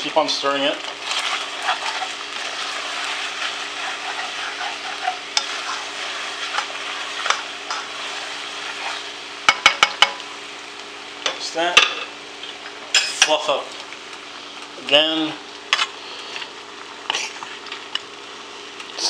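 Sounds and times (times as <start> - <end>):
food sizzling in a pot: 0.0 - 19.0
utensil scraping pot: 1.0 - 10.1.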